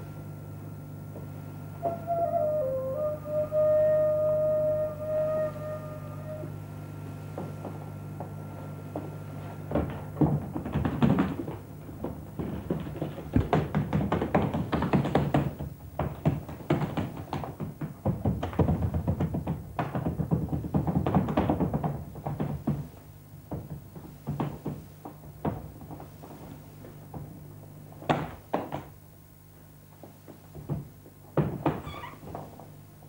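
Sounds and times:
low steady hum: 0.0s - 18.5s
bare feet striking stage floor: 7.3s - 29.0s, 29.9s - 32.8s.

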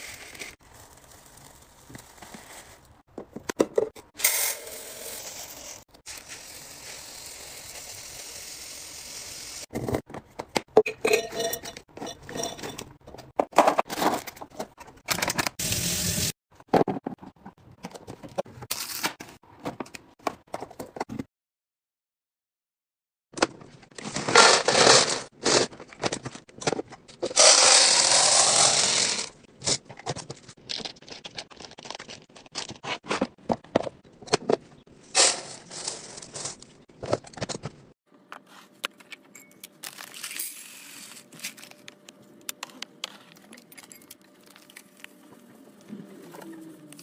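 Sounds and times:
glass canisters clinking: 10.8s - 12.9s.

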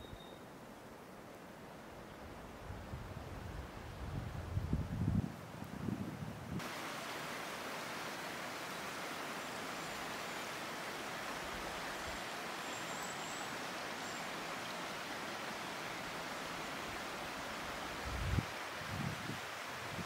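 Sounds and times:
creek running over stones: 6.6s - 20.0s.

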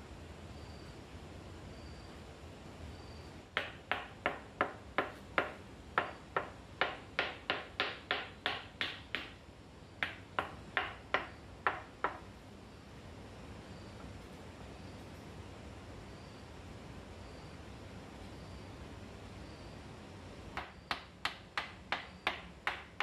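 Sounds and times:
trowel handle tapping tile: 3.6s - 9.4s.

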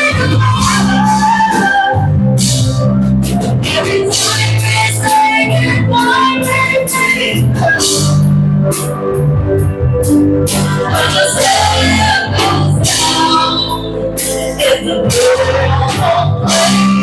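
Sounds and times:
woman singing into a microphone: 0.0s - 2.3s, 3.7s - 8.2s, 10.5s - 17.0s
bass guitar: 0.0s - 17.0s
drums: 0.0s - 17.0s
electric guitars: 0.0s - 17.0s
keyboard: 0.0s - 17.0s.

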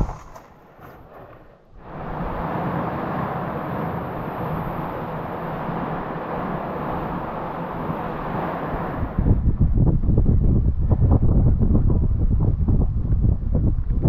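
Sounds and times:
wind on microphone: 0.0s - 14.0s.

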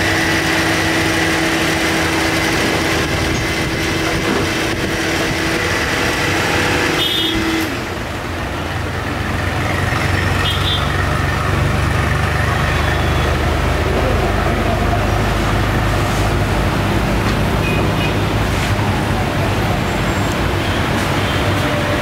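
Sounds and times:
mixer grinder blending: 0.0s - 8.0s.

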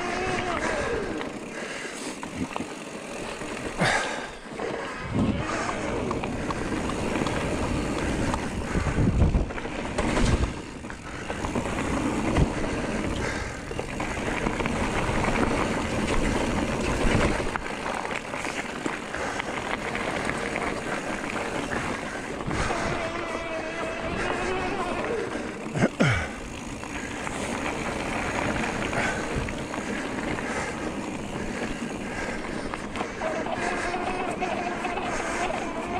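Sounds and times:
bike tyres rattling over rough ground: 0.0s - 35.9s
wind buffeting microphone: 5.0s - 17.8s.

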